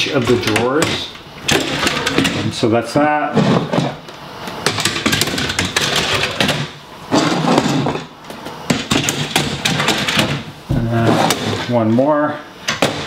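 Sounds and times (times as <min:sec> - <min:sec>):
drawer rolling and scraping on rails: 0:01.5 - 0:02.6, 0:03.3 - 0:04.0, 0:04.7 - 0:08.1, 0:08.7 - 0:11.7.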